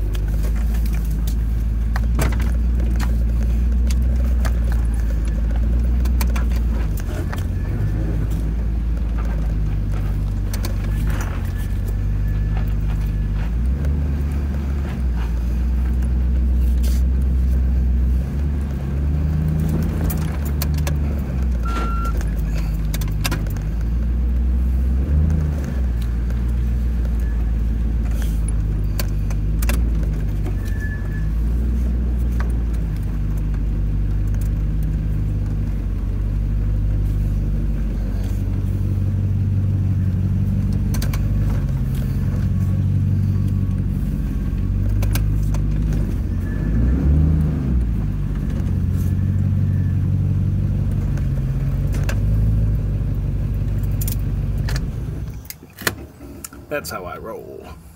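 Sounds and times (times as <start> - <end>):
clicks and light rattles: 0.0 - 7.6, 19.4 - 24.4, 53.6 - 56.7
car engine running: 0.0 - 57.9.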